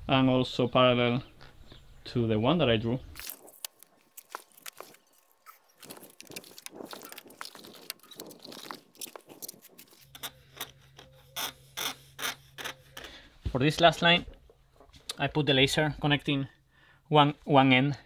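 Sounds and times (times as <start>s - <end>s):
pencil scratching on concrete: 9.8s - 13.1s.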